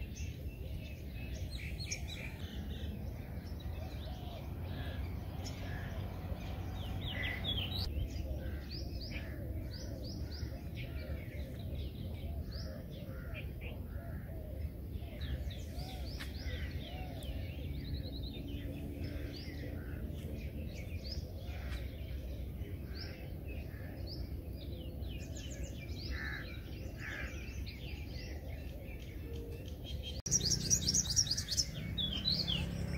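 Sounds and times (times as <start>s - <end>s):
small birds chirping: 0.0s - 32.9s.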